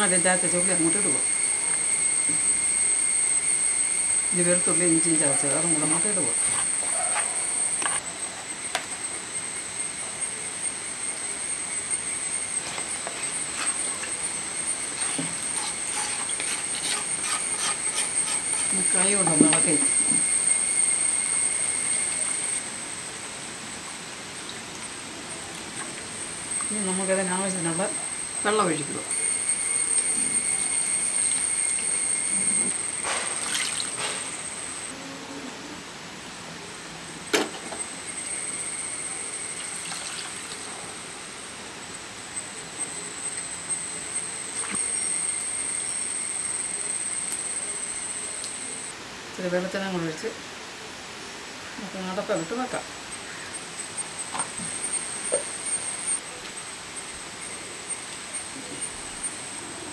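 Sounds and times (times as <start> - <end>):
high-pitched whine: 0.0 - 59.9
utensil scraping clay plate: 12.6 - 14.2, 14.8 - 20.4
water pouring into a pot: 39.6 - 40.7.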